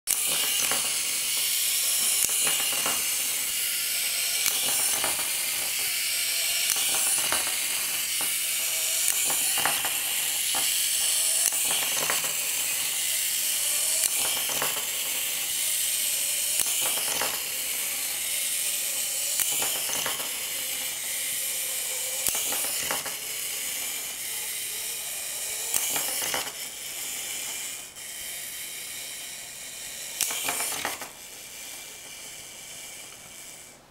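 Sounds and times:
toy plane knocking on wooden floor: 0.1 - 18.2, 19.3 - 24.1
clockwork motor whirring: 0.1 - 33.9.

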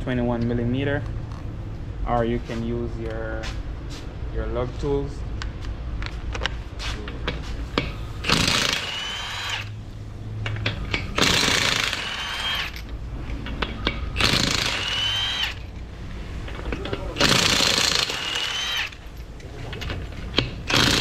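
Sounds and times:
impact wrench hammering: 7.8 - 9.7, 10.5 - 12.9, 13.5 - 15.7, 16.5 - 19.2, 20.3 - 21.0.

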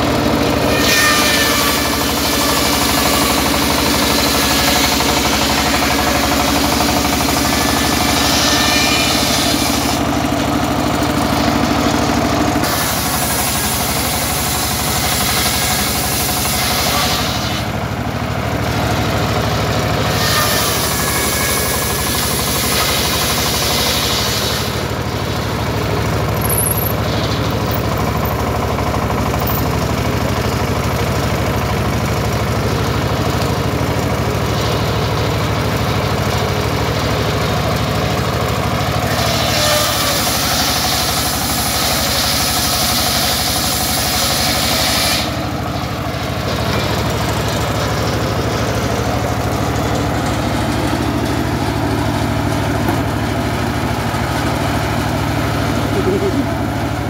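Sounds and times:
saw blade cutting wood: 0.0 - 17.9, 18.6 - 30.4, 39.0 - 50.6
stationary engine running: 0.0 - 57.0.

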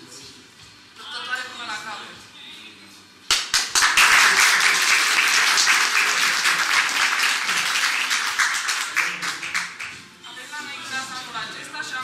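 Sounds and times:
group of people applauding: 3.3 - 10.1.

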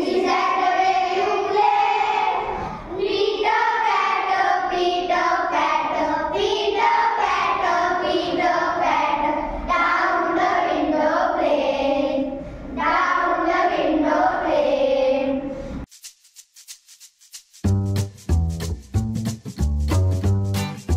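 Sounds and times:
children singing in unison: 0.0 - 15.6
shaker music: 15.8 - 20.9.

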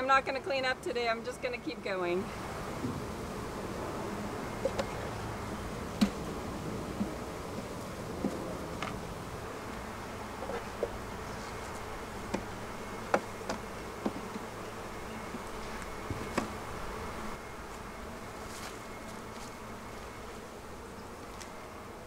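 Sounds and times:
honeybees buzzing: 0.0 - 22.0
wooden knocks of hive frames: 4.6 - 9.1, 10.4 - 11.1, 12.2 - 14.6, 15.2 - 16.6.

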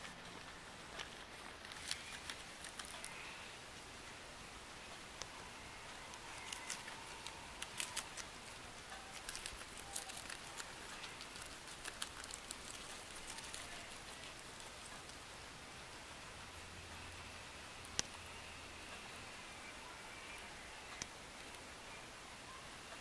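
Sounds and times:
guinea pig chewing lettuce: 0.0 - 4.0, 4.8 - 16.3.

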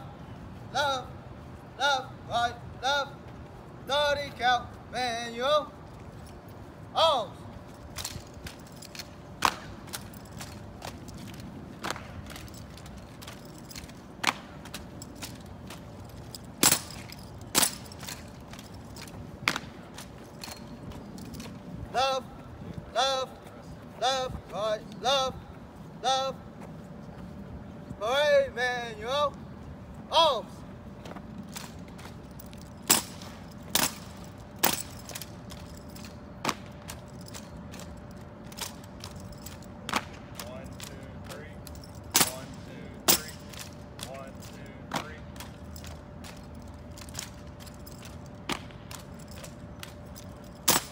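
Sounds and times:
hands slapping rifles: 9.4 - 11.0.

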